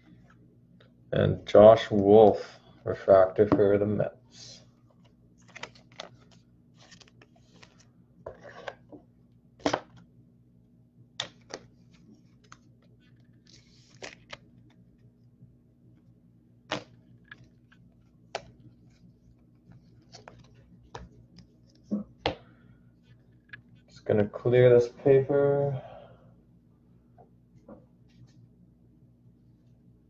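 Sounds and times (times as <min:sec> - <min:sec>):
plastic card sleeve crinkling: 0:05.0 - 0:08.6, 0:11.2 - 0:14.9, 0:16.7 - 0:21.9.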